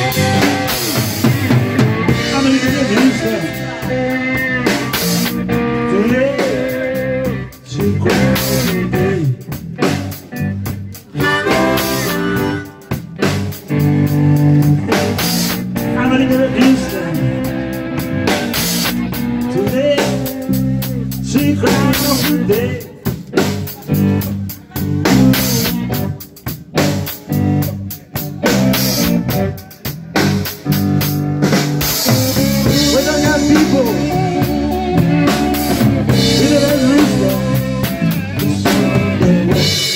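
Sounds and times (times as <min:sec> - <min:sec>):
drum kit: 0:00.0 - 0:39.9
electric bass: 0:00.0 - 0:39.9
guitar: 0:00.0 - 0:39.9
man singing into a microphone: 0:02.0 - 0:09.6, 0:14.6 - 0:17.7, 0:18.8 - 0:26.0, 0:32.6 - 0:39.9.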